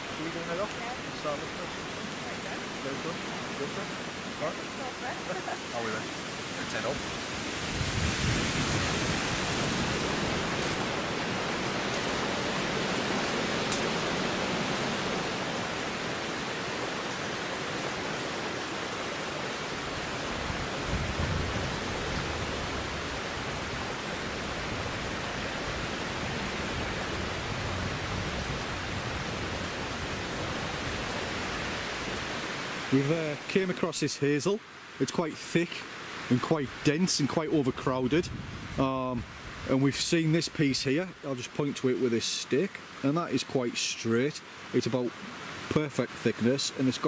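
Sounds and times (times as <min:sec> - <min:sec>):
flowing stream water: 0:00.0 - 0:47.0.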